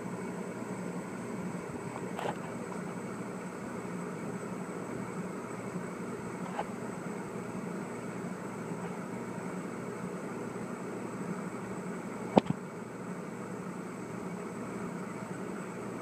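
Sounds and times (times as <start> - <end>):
steady mechanical hum: 0.0 - 16.0
sharp click: 12.4 - 12.6.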